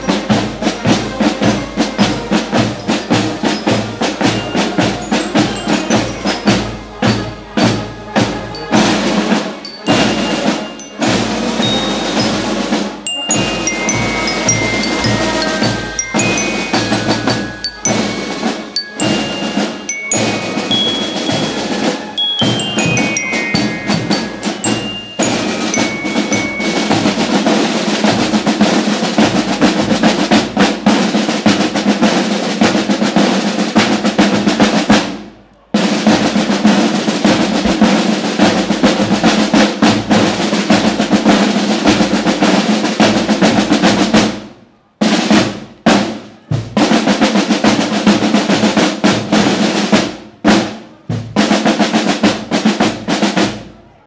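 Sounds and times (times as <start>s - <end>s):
marching snare drums: 0.0s - 54.0s
bell lyre notes: 2.8s - 6.8s, 8.7s - 27.5s.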